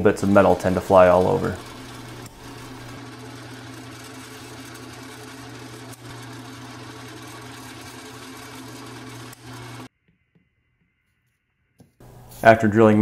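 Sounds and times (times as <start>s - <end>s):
drill press drilling metal: 0.0s - 9.9s.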